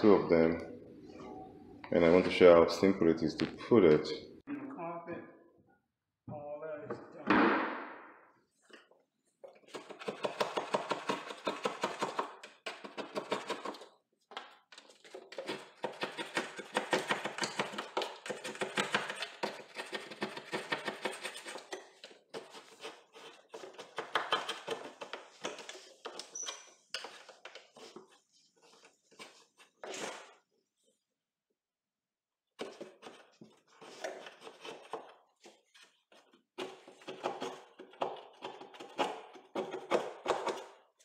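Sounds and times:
scraper scraping wood: 14.8 - 30.4, 32.6 - 40.8.

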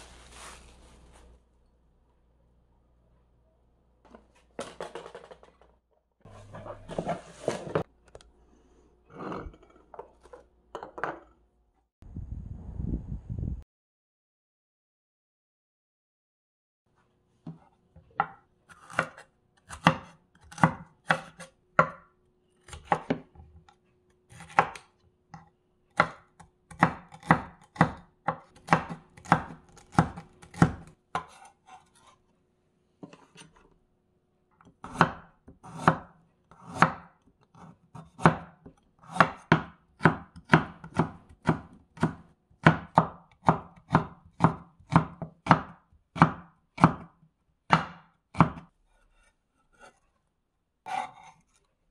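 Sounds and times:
knife chopping on wooden board: 17.5 - 22.0, 22.6 - 23.4, 24.3 - 32.1, 34.7 - 50.0.

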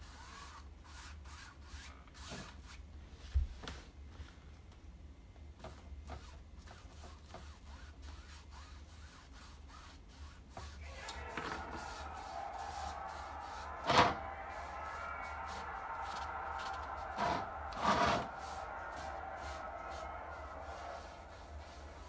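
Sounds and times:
faint musical tones: 10.8 - 22.0.

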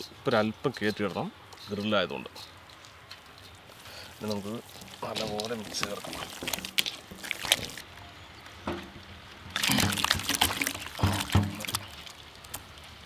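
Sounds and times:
wet paste squelching by hand: 3.7 - 7.9, 9.5 - 13.0.

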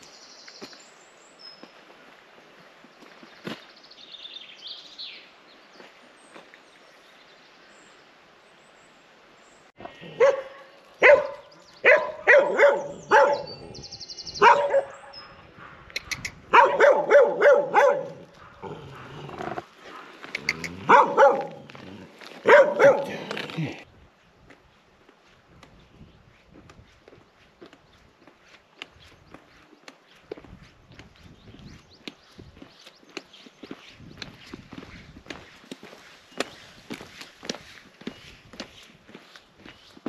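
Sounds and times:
dog barking: 10.0 - 13.8, 14.4 - 15.9, 16.5 - 20.2, 20.8 - 21.7, 22.4 - 23.3.

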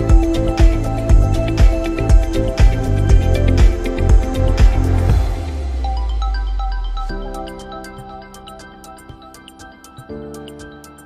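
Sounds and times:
ticking percussion: 0.0 - 6.0
synth chords: 0.0 - 11.0.

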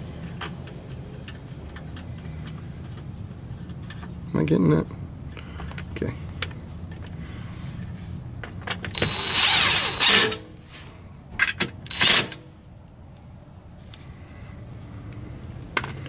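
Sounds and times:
impact driver bursts: 8.9 - 10.5, 11.9 - 12.4.

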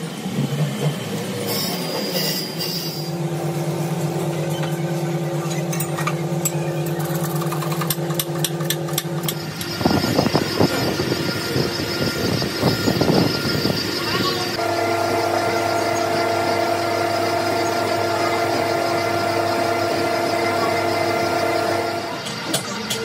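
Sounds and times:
workshop machine hum: 0.0 - 23.0
grinding wheel grinding metal: 1.4 - 23.0.

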